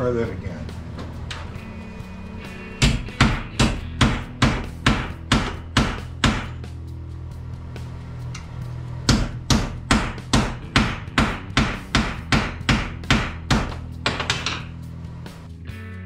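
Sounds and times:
low hum: 0:00.0 - 0:10.8
hammer striking sheet metal: 0:02.8 - 0:06.7, 0:09.1 - 0:14.7.

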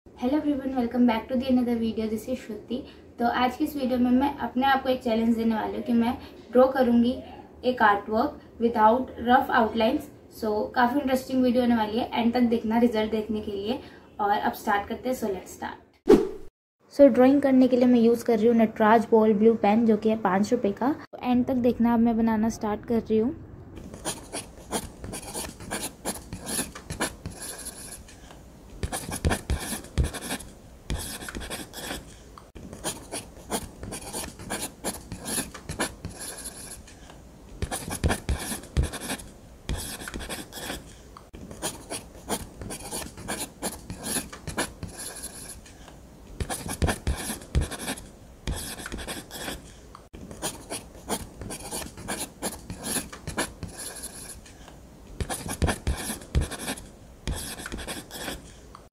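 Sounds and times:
ballpoint pen scratching on paper: 0:23.8 - 0:28.2, 0:28.8 - 0:37.0, 0:37.6 - 0:58.6.

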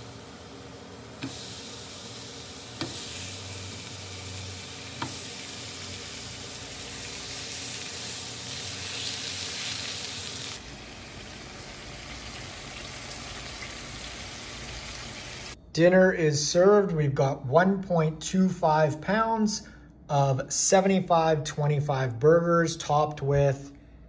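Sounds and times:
burger patties sizzling in a pan: 0:00.0 - 0:15.6.

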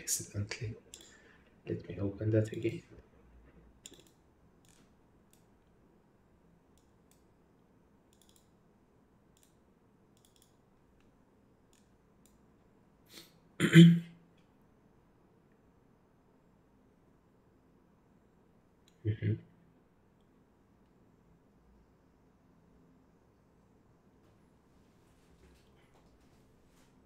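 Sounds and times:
computer mouse clicks: 0:00.9 - 0:01.2, 0:03.8 - 0:05.8, 0:06.7 - 0:07.4, 0:08.0 - 0:08.7, 0:09.3 - 0:12.4
man's voice burst: 0:19.1 - 0:19.4.

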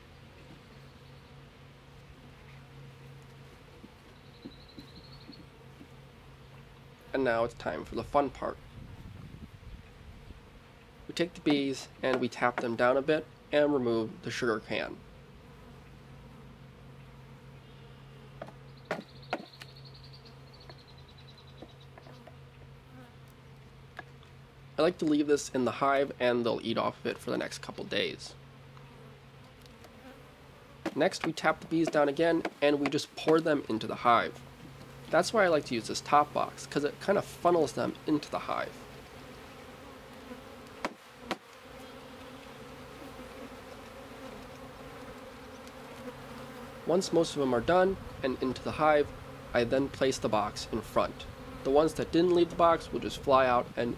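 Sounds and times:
bees humming: 0:00.0 - 0:08.9, 0:09.6 - 0:53.9
honeybees buzzing: 0:00.0 - 0:53.9
sharp knocks: 0:18.4 - 0:19.6, 0:40.8 - 0:41.4.

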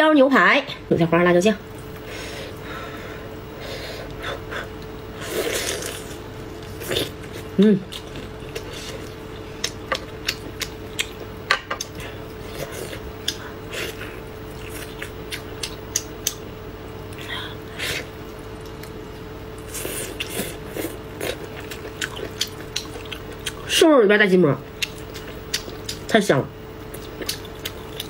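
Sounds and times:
faint steady hum: 0:00.0 - 0:28.0
wet chewing and biting: 0:19.8 - 0:23.7, 0:24.8 - 0:26.1, 0:26.9 - 0:28.0.

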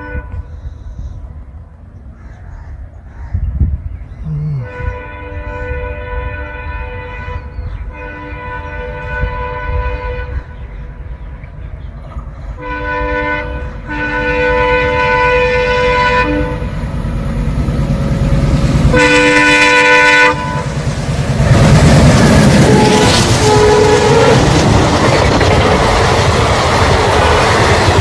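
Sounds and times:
locomotive air horn blasts: 0:00.0 - 0:00.6, 0:04.6 - 0:10.6, 0:12.6 - 0:16.8, 0:18.9 - 0:20.8, 0:22.6 - 0:24.5.

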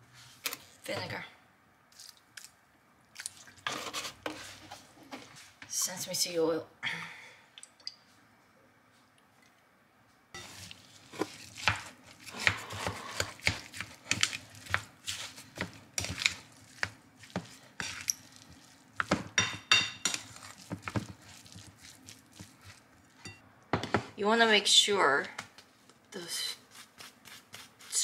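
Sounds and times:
sticky rice squishing: 0:01.9 - 0:03.6, 0:10.4 - 0:23.2, 0:26.6 - 0:28.0
paddle tapping and scraping bowl: 0:10.4 - 0:24.0.

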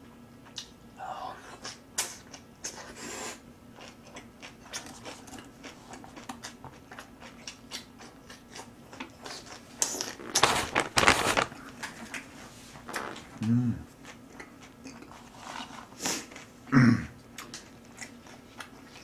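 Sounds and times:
chewing with wet mouth clicks: 0:03.8 - 0:10.1, 0:14.0 - 0:15.1, 0:17.3 - 0:19.0
paper tissue rustling: 0:10.1 - 0:11.6.

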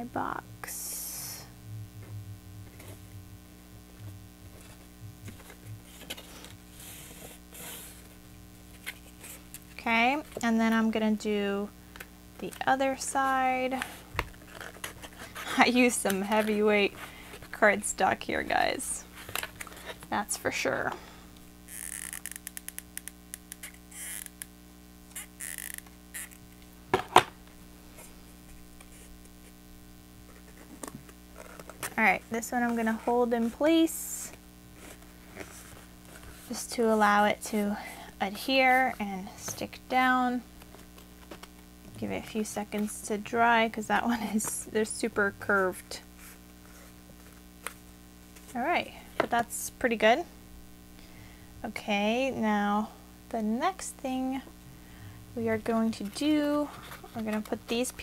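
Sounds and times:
low electrical hum: 0:00.0 - 0:58.0
card rustling scrapes: 0:04.4 - 0:10.4, 0:13.7 - 0:17.6, 0:19.1 - 0:20.1, 0:21.7 - 0:24.5, 0:25.1 - 0:26.4, 0:27.8 - 0:29.6, 0:30.3 - 0:33.7, 0:34.7 - 0:39.6, 0:46.2 - 0:48.6, 0:56.0 - 0:57.8.

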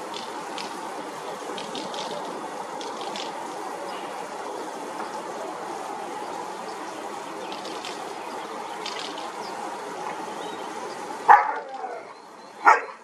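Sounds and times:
steady rushing noise: 0:00.0 - 0:13.0
dog barking: 0:11.3 - 0:11.7, 0:12.6 - 0:13.0.

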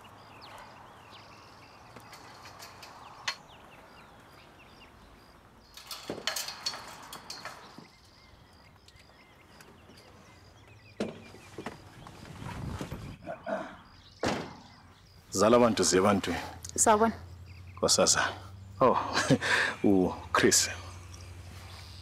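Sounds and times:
birds chirping: 0:00.0 - 0:22.0
knocks and rattles: 0:01.8 - 0:03.6, 0:05.6 - 0:08.2, 0:11.0 - 0:13.2.

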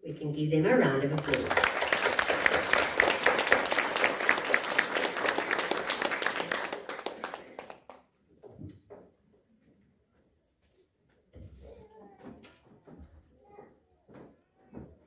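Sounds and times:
audience applause: 0:01.2 - 0:08.0.

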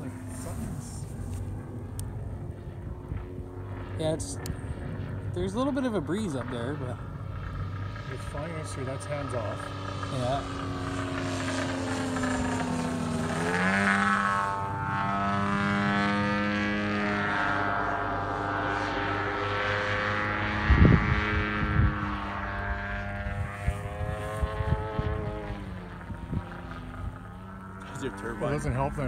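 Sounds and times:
wind rumble on microphone: 0:00.0 - 0:06.2, 0:20.2 - 0:29.0
model plane engine buzzing: 0:00.0 - 0:29.0.

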